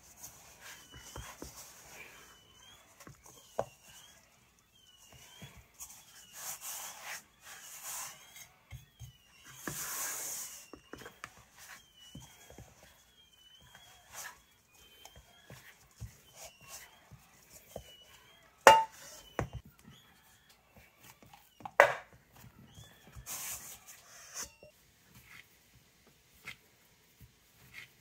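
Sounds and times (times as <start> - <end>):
faint high squeak: 0.2 - 21.8, 22.4 - 25.4
bowl knocking: 18.7 - 19.1.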